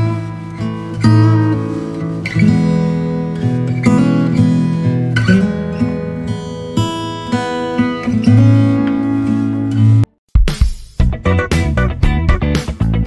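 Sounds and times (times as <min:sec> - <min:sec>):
acoustic guitar strumming chords: 0:00.0 - 0:10.1.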